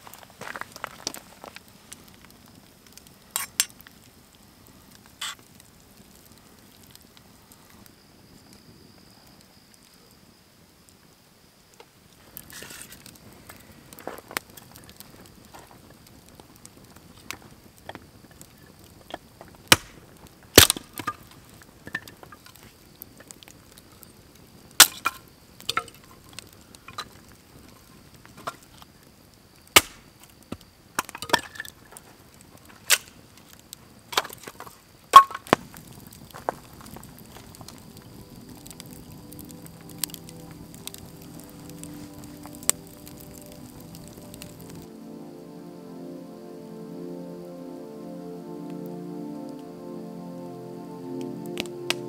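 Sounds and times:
campfire crackling and snapping: 0.0s - 52.0s
firewood splitting cracks: 12.3s - 23.9s, 24.7s - 28.8s, 29.7s - 44.9s.

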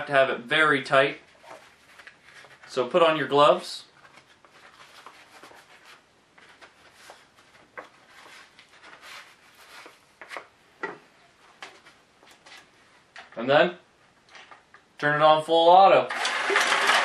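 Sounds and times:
gloves rubbing and rustling: 0.9s - 13.2s.

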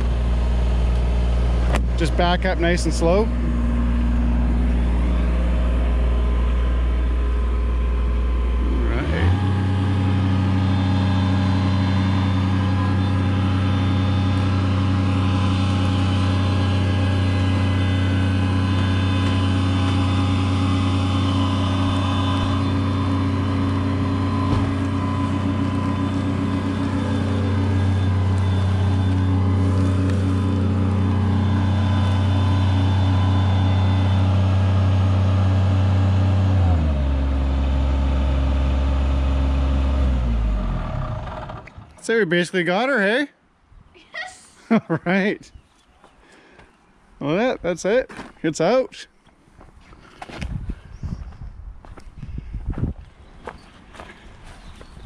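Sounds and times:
loader engine running at high throttle: 0.0s - 42.0s.

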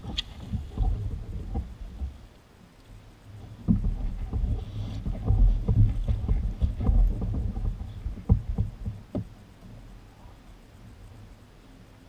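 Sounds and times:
gear knocking on plastic kayak: 0.0s - 2.3s, 3.4s - 9.4s
low rumble: 0.0s - 12.0s.

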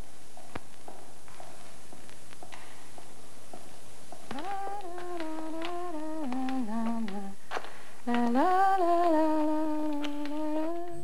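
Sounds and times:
woman humming: 4.3s - 11.0s.

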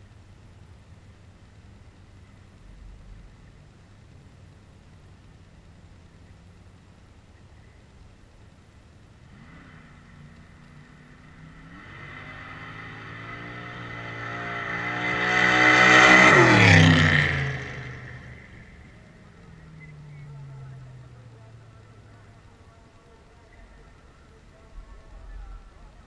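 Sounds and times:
car engine accelerating past: 9.2s - 22.6s.

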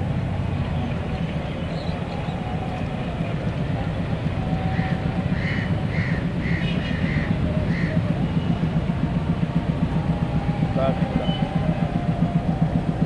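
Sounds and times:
diesel locomotive engine rumble: 0.0s - 13.0s
crow cawing: 4.8s - 8.1s.

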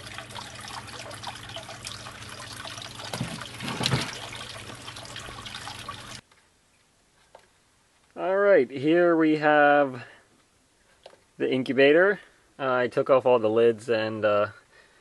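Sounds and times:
water trickling: 0.0s - 6.2s
splash into water: 3.1s - 4.4s.

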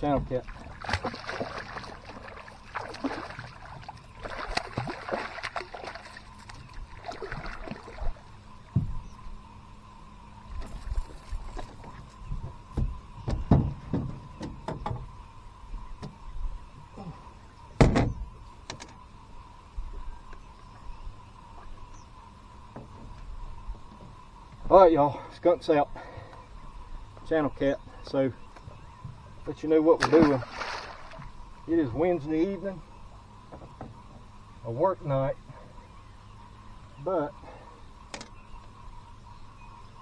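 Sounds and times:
water splashing: 0.0s - 8.4s, 29.9s - 31.4s
fish thumping on boat: 30.0s - 31.2s.

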